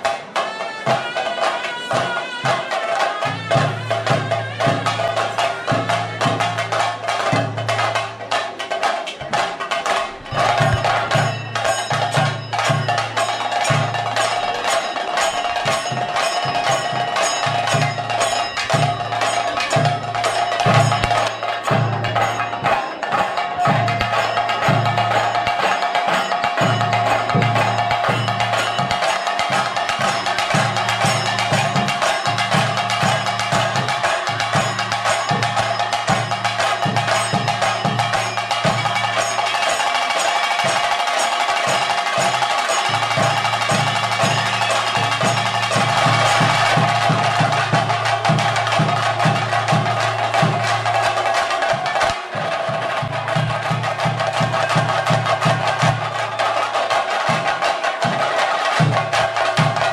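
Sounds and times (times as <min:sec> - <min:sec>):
fast stick drumming: 0:00.0 - 0:59.9
deep drum beats: 0:03.3 - 0:40.0, 0:41.6 - 0:56.4
steady ringing tone: 0:10.3 - 0:40.8.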